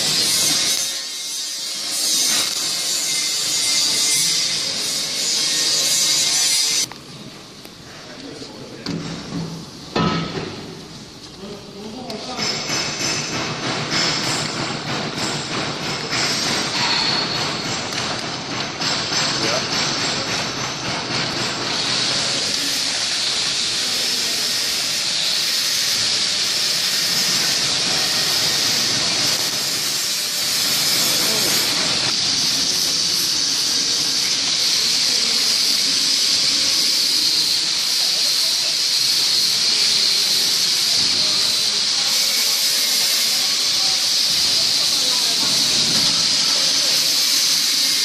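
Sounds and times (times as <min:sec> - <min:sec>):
shrink-wrapping machine hissing: 0:12.1 - 0:48.0.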